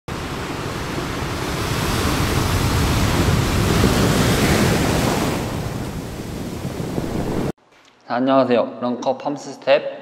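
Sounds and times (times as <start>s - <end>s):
sea waves washing over rocks: 0.1s - 7.5s.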